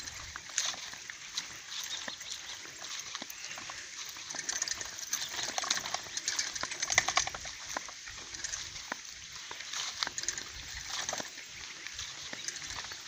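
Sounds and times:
bicycle pushed through dry grass: 0.0 - 13.0.

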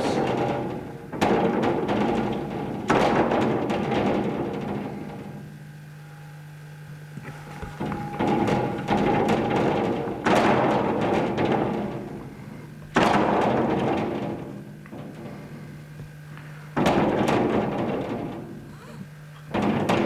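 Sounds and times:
window panes rattling: 0.0 - 5.5, 7.2 - 12.4, 13.0 - 15.6, 16.8 - 18.7, 19.5 - 20.0
steady low hum: 0.0 - 20.0.

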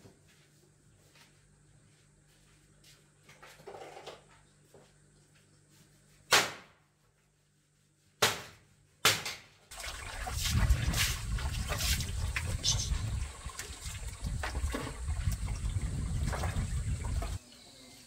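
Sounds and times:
wood striking bamboo poles: 8.2 - 9.6
water splashing into plastic basin: 9.7 - 17.4.

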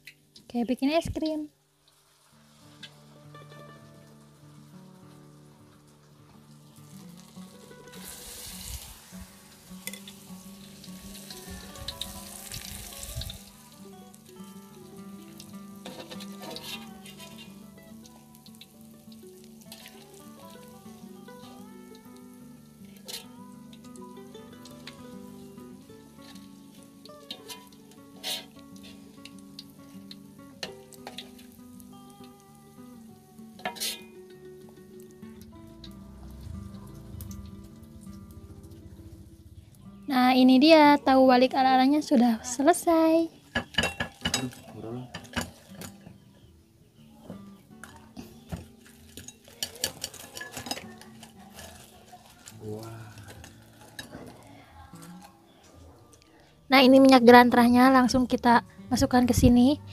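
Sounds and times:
deep-frying in hot oil: 0.0 - 54.5
metal utensils clinking on wok: 9.8 - 12.5, 15.3 - 18.7, 19.7 - 20.0, 22.8 - 23.8, 26.2 - 31.5, 33.6 - 34.2, 43.5 - 46.2, 47.8 - 52.5, 53.2 - 54.4.

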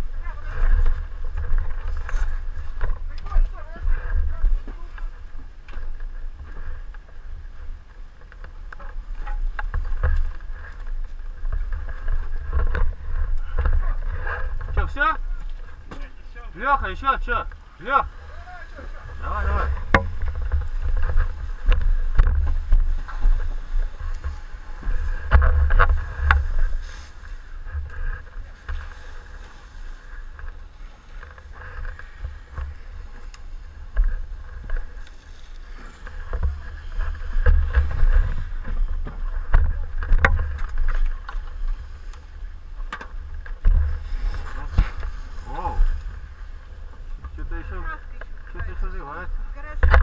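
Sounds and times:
microphone rumbling and buffeting: 0.0 - 50.0.

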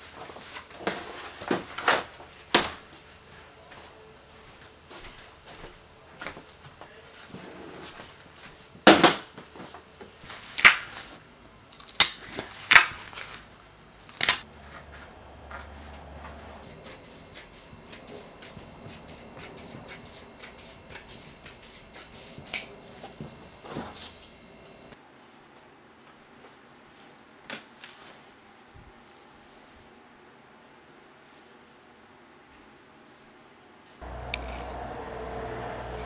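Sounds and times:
scissors cutting fabric: 16.2 - 22.7.

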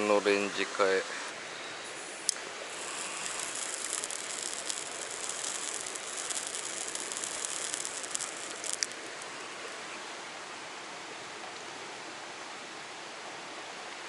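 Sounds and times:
flowing water: 0.0 - 14.0
lighter flame hissing: 1.9 - 9.4
lighter clicking: 2.2 - 9.0.

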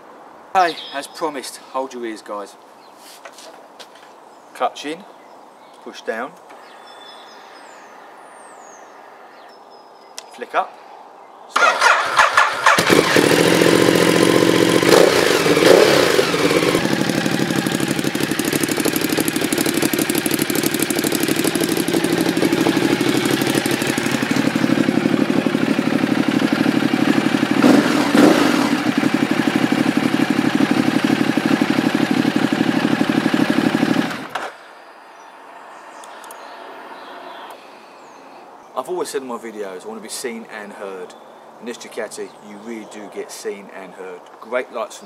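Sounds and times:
motorcycle engine revving and idling: 11.6 - 34.4.

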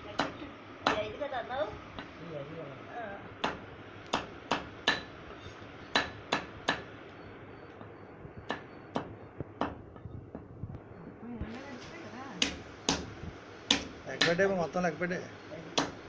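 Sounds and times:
knife chopping on wooden block: 13.7 - 14.4.

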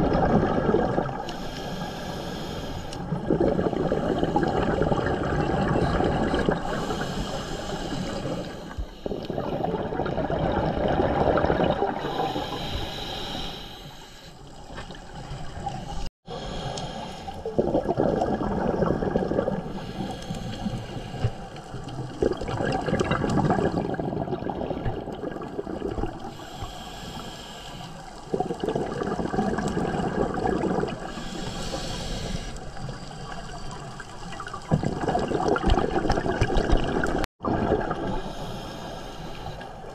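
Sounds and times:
exhaled bubbles gurgling: 0.0 - 2.1, 3.0 - 13.4, 17.3 - 26.8, 28.1 - 39.1
diver breathing through regulator: 1.2 - 4.9, 6.5 - 9.9, 11.9 - 14.5, 15.8 - 17.6, 19.6 - 21.8, 26.2 - 28.6, 30.1 - 33.4, 38.1 - 39.9.

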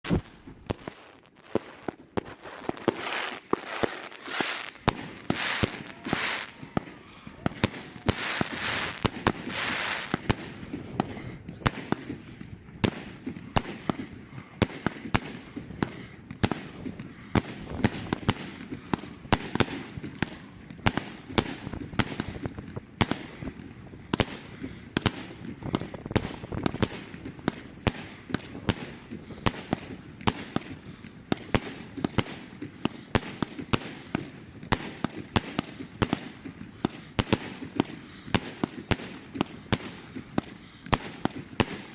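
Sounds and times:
fireworks bangs and crackles: 0.0 - 41.9
hissing rush: 2.4 - 10.5.

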